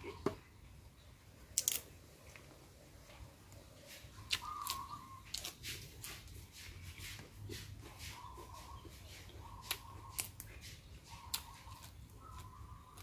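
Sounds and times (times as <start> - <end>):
raw vegetables snapping and crunching: 1.5 - 2.5, 3.5 - 6.3, 9.3 - 13.0.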